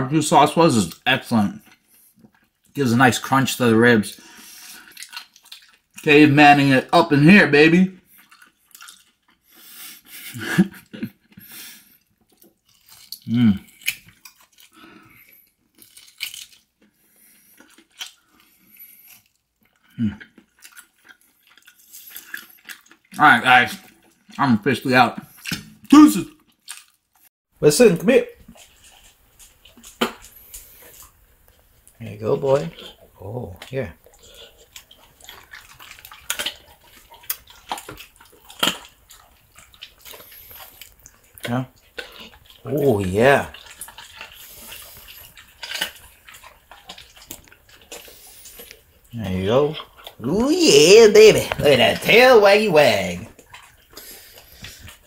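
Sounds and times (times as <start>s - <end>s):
person chewing and biting: 4.2s - 6.0s, 8.0s - 24.4s, 25.2s - 27.2s, 28.3s - 50.3s, 53.0s - 55.0s
bone crunches: 12.4s - 16.8s, 26.5s - 27.2s, 28.5s - 31.2s, 33.6s - 49.0s.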